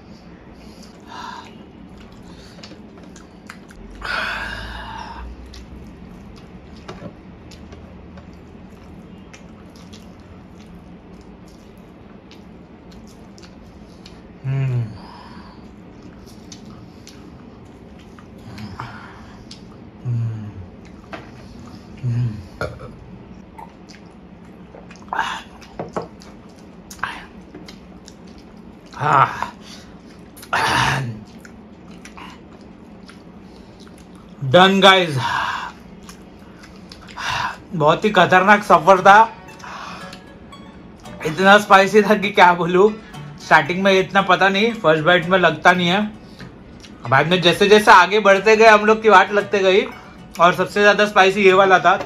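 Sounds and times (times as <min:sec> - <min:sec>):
wet chewing and lip smacks: 0:00.7 - 0:04.0, 0:05.4 - 0:14.2, 0:15.8 - 0:18.7, 0:23.5 - 0:29.0, 0:31.2 - 0:34.4, 0:35.8 - 0:37.3, 0:46.2 - 0:47.1.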